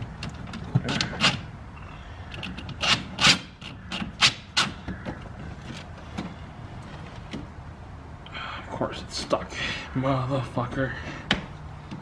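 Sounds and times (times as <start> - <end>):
battery clamp scraping on post: 0.0 - 1.5, 2.2 - 7.5.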